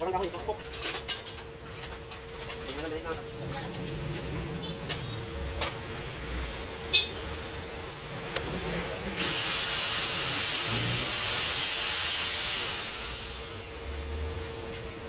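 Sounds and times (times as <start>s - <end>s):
motor hissing whir: 9.1s - 14.2s.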